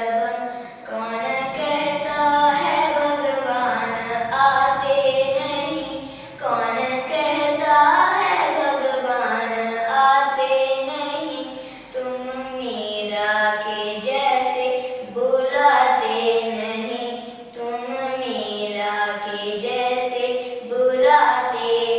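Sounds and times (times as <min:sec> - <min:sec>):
girl singing: 0:00.0 - 0:21.9.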